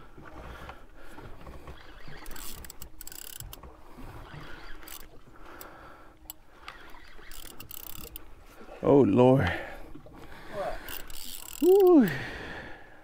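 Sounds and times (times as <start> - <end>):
water lapping at boat: 0.0 - 13.0
fishing reel cranking: 1.7 - 8.3, 10.8 - 12.3.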